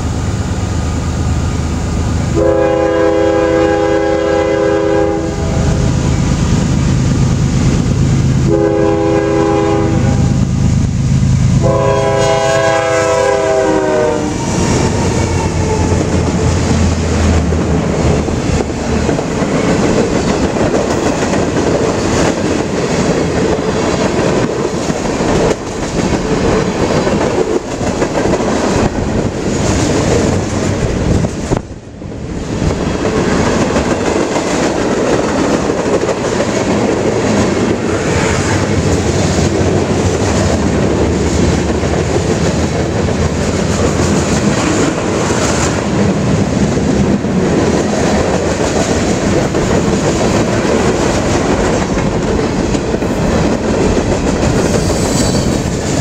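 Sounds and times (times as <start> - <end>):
locomotive horn blasts: 2.3 - 5.8, 8.4 - 10.4, 11.6 - 14.6
train wheels clacking over rail joints: 12.1 - 31.7, 32.5 - 56.0.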